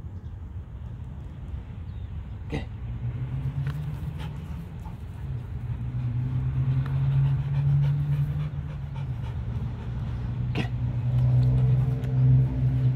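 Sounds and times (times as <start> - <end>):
dog panting hard: 4.0 - 10.5.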